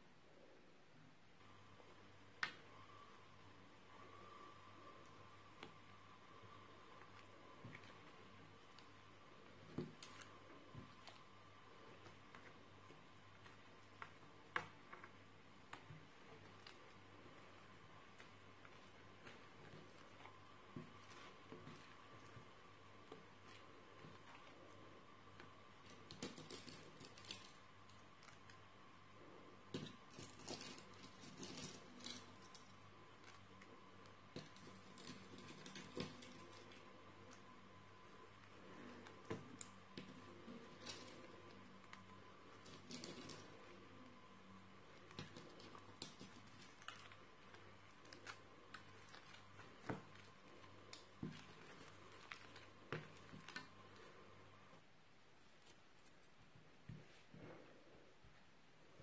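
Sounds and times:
steady low hum: 0.0s - 59.0s
slime squishing and crackling: 29.6s - 54.1s.

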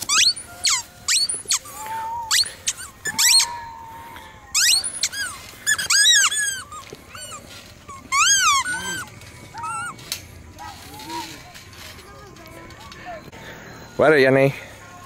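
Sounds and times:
rubber squeaky toy squeaking: 0.0s - 3.8s, 4.5s - 10.0s.

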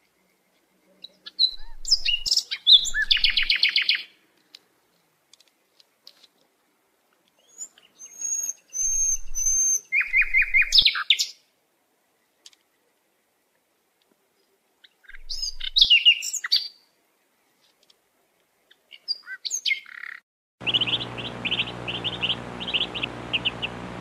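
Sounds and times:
chaffinch singing: 1.0s - 4.0s, 18.9s - 24.0s.

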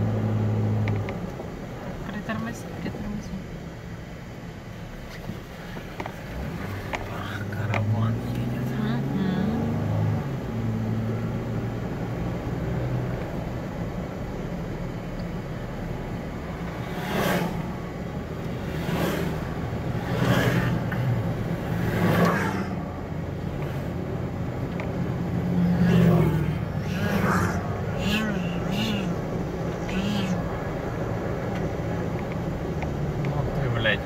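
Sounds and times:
engine and tyre noise in cabin: 0.0s - 34.0s
oncoming vehicle passing: 16.4s - 34.0s.

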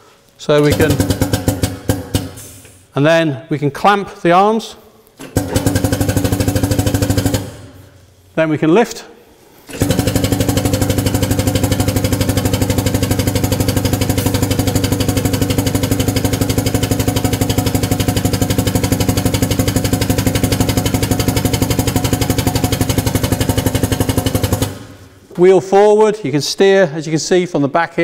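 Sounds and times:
hydraulic power unit pulsing: 0.6s - 2.7s, 5.2s - 7.8s, 9.7s - 25.1s.

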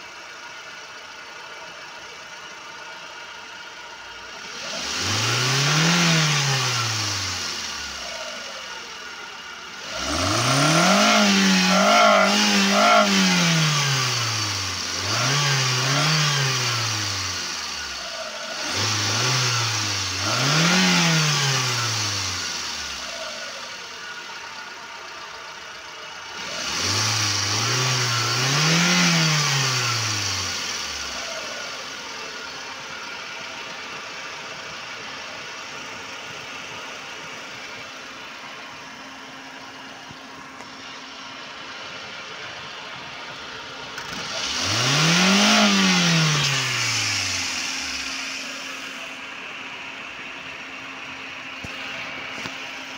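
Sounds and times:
car engine revving: 3.1s - 52.9s.

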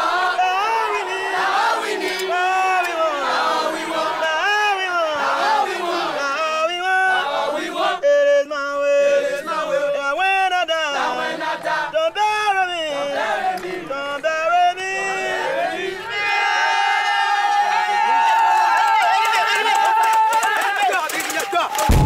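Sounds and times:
young men chanting and shouting: 0.0s - 22.0s.

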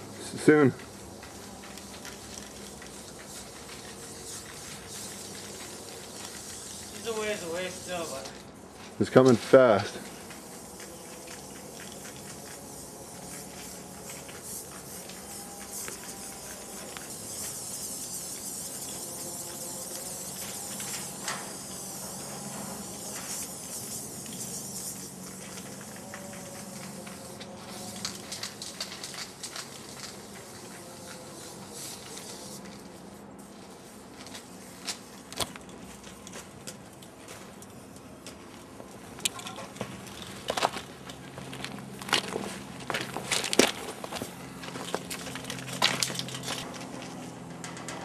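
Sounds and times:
spray-paint can hissing: 0.9s - 8.4s, 10.0s - 35.1s.

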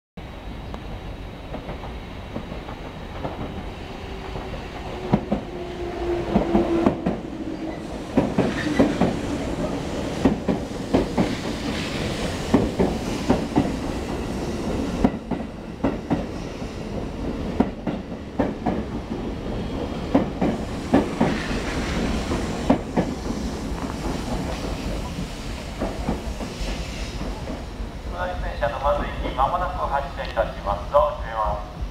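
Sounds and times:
train running noise: 0.2s - 31.9s
train wheels clicking over rail joints: 1.5s - 3.6s, 6.3s - 27.7s.

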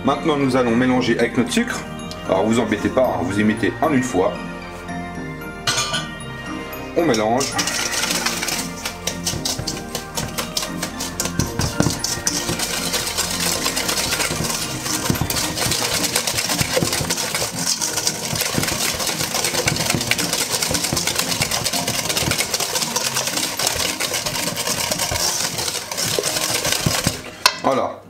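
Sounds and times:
whisk clattering in metal bowl: 7.1s - 27.8s.

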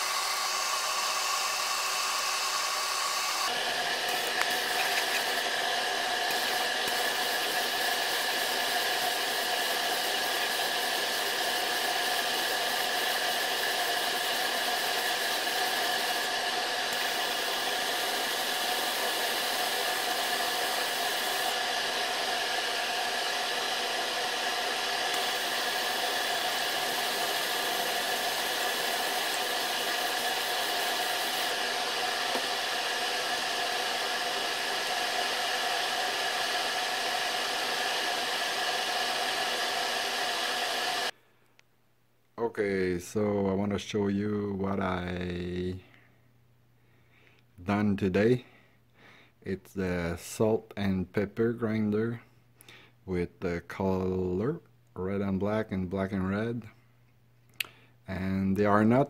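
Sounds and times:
wood lathe whirring: 0.0s - 41.1s.

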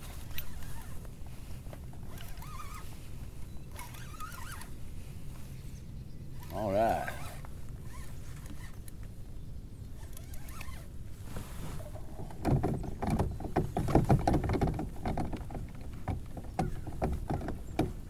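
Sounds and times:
knocks against a kayak: 12.2s - 18.0s.

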